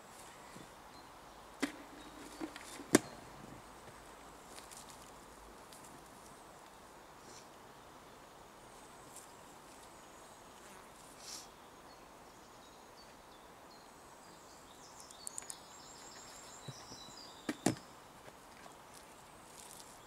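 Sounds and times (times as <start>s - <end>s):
faint high chirping: 11.2s - 18.0s.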